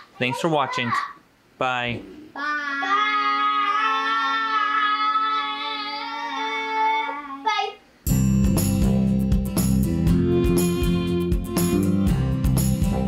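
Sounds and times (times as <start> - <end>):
children singing together: 2.4 - 7.7
plucked instrumental music: 8.1 - 13.0.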